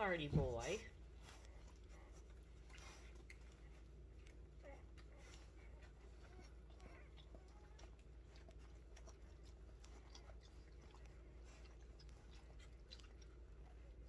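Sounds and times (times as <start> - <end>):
soft rustling: 0.0 - 14.0
steady low hum: 0.0 - 14.0.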